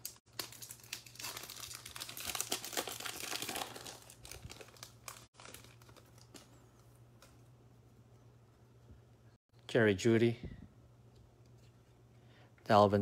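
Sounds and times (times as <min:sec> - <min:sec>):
foil wrapper crinkling and tearing: 0:00.0 - 0:06.6.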